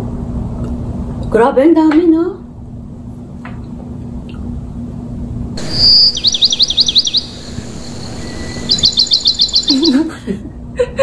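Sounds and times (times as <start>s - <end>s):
bird chirping: 5.6s - 10.1s.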